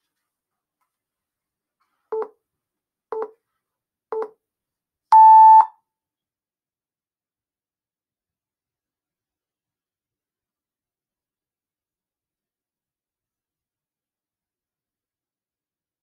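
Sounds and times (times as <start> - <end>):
countdown timer beeps: 5.2 - 5.7.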